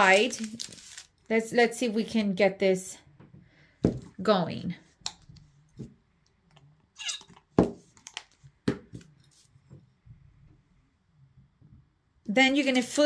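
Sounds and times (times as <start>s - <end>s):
short falling squeak: 7.0s - 7.3s.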